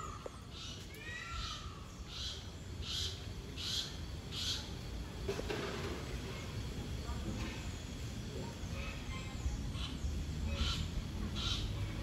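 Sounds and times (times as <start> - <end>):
raspy high bird calls: 0.0 - 4.8, 8.6 - 12.0.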